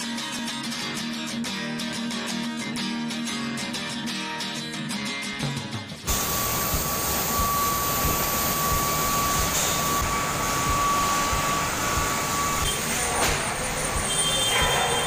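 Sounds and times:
machinery running: 6.1s - 15.0s
thin high whine: 6.1s - 15.0s.

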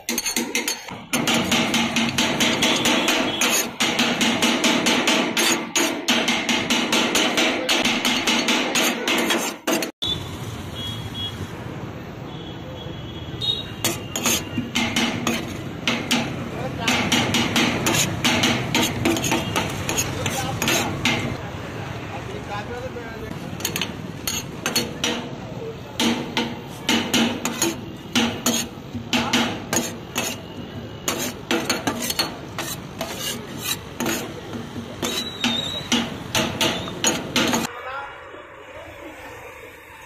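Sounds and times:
cleaver chopping on metal griddle: 0.0s - 9.9s, 13.8s - 21.4s, 23.3s - 37.7s.

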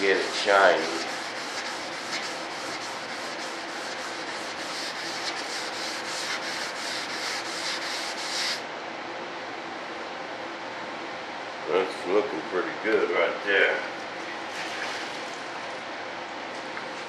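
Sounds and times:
sandpaper strokes on sanding block: 0.0s - 8.6s.

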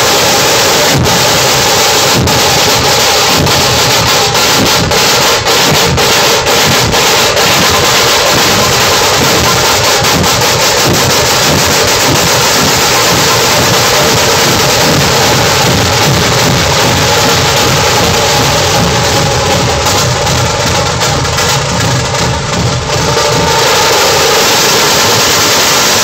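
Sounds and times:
drum ensemble playing loudly: 0.0s - 26.0s.

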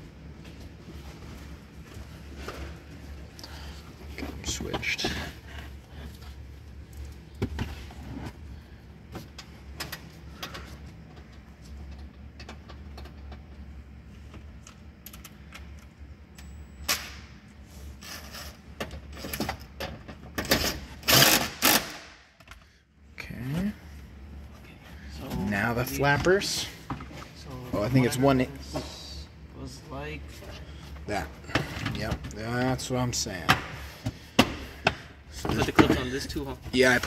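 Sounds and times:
steady low hum: 0.0s - 37.0s.

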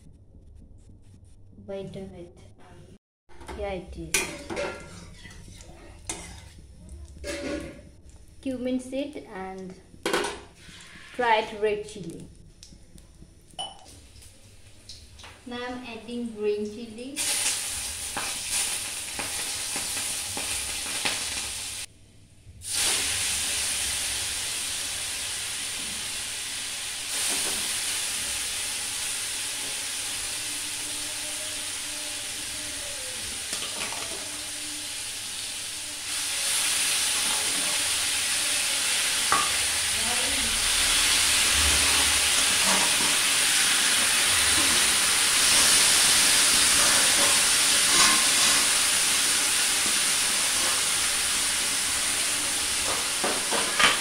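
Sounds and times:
hot oil sizzling with spices: 4.0s - 21.9s, 22.6s - 54.0s
lentils tipped into hot oil hissing: 17.2s - 21.9s.

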